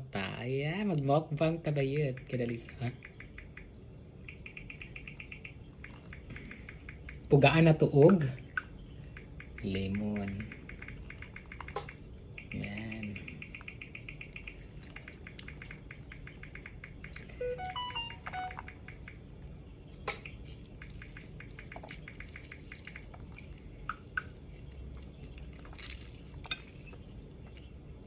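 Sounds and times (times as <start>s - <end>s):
faint fast ticking: 1.8s - 28.0s
lemon juice dripping: 2.0s - 28.0s
short chirp-like tones: 12.4s - 19.3s.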